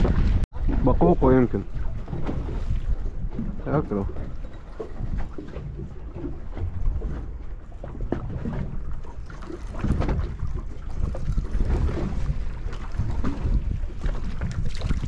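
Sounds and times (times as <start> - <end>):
water splashing against hull: 0.0 - 15.0
wind buffeting microphone: 0.0 - 15.0.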